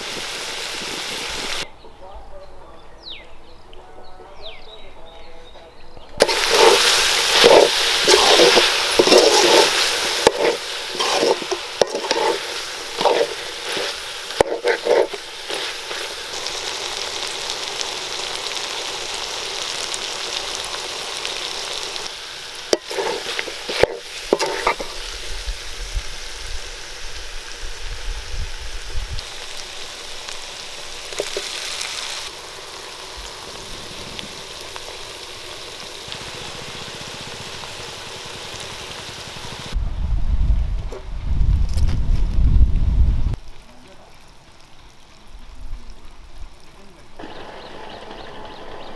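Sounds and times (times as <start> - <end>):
food sizzling in a metal pot: 0.0 - 1.7, 6.2 - 39.8, 43.3 - 48.9
metal ladle scraping a pot: 6.2 - 16.1, 22.7 - 25.0.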